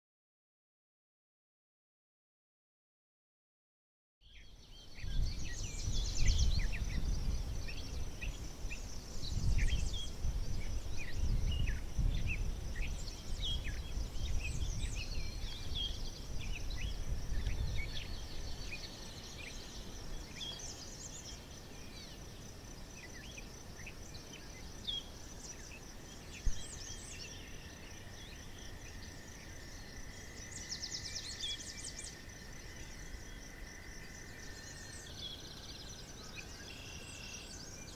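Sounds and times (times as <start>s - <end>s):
birds chirping and calling: 4.4s - 22.2s
high insect drone: 4.5s - 37.9s.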